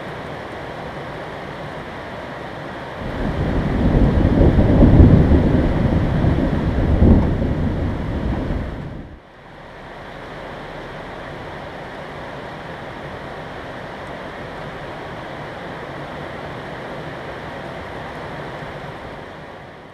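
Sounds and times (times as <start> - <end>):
thunder rumbling: 3.0 - 9.2
steady hiss: 7.4 - 19.9.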